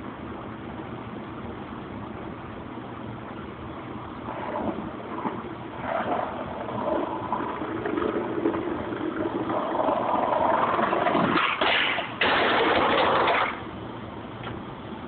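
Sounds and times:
skateboard wheels rolling on pavement: 4.2 - 13.7
skateboard scraping along metal handrail: 4.3 - 13.6.

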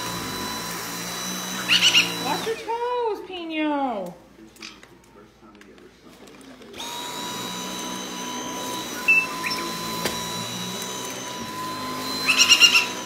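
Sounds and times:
vacuum cleaner whining: 0.0 - 4.0, 6.2 - 13.0
parrot chirping: 1.6 - 2.4, 9.0 - 9.7, 12.2 - 12.9
parrot squawking: 1.6 - 2.4, 12.2 - 13.0.

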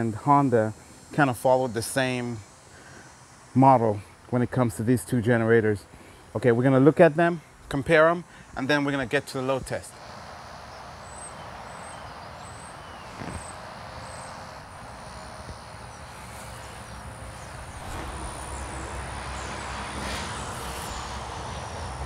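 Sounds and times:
low rumble: 17.6 - 22.0.

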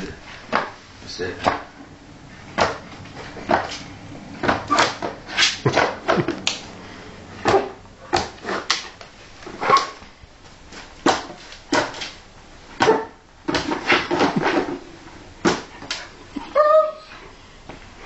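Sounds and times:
dog yipping and whining: 16.4 - 17.2.

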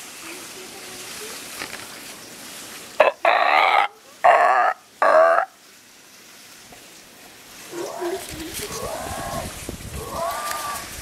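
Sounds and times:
loud wavering animal calls: 7.7 - 11.0.

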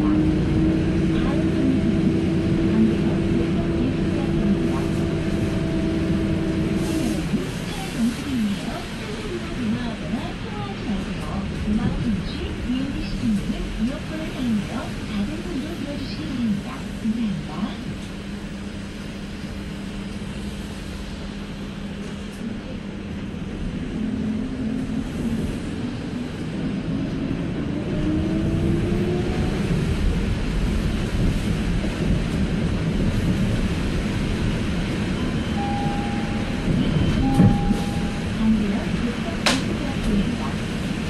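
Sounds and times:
road noise on wet street: 0.0 - 17.1, 18.0 - 41.0
bus engine hum and whine: 0.0 - 41.0
short beeps: 35.2 - 38.4.

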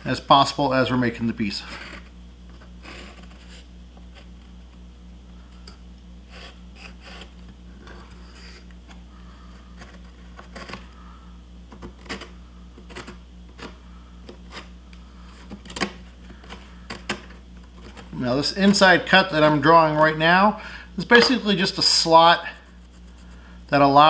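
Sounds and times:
steady low hum: 0.0 - 24.0
pencil scratching on wood: 6.3 - 7.3.

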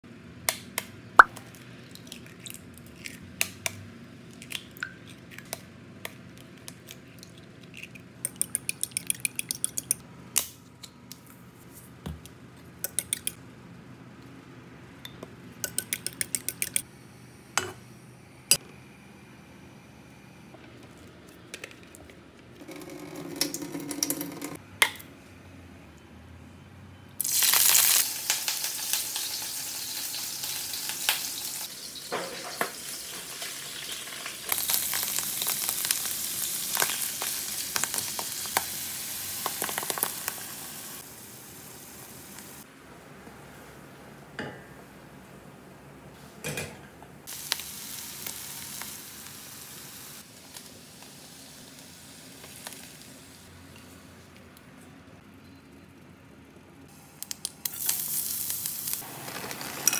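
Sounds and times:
utensils tapping glass bowl: 15.1 - 16.8
loud frying sizzle: 27.2 - 42.7, 47.2 - 53.7, 56.9 - 59.9.

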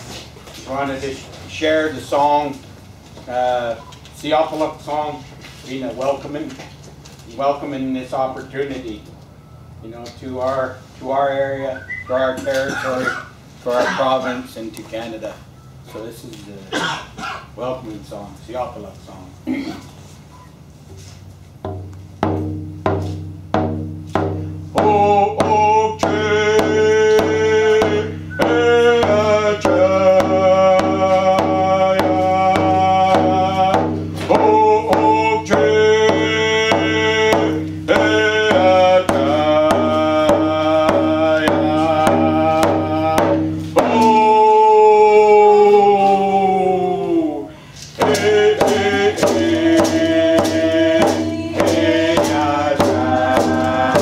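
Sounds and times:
hand drums beating: 21.6 - 44.4, 48.0 - 54.0
voices singing together: 24.7 - 54.0.

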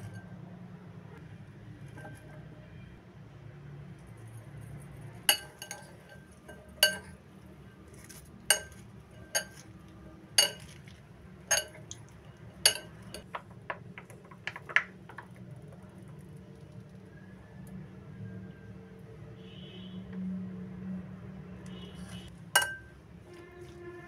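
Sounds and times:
fork clinking against glass bowl: 5.3 - 7.2, 8.0 - 9.7, 10.4 - 10.8, 11.5 - 13.3, 22.6 - 22.9.

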